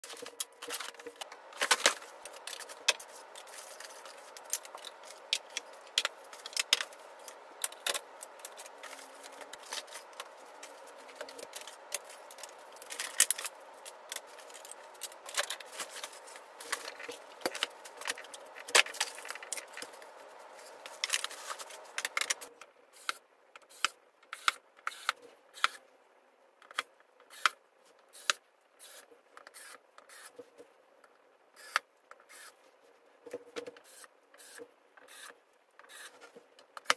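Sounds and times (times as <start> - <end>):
background hum: 0.0 - 36.9.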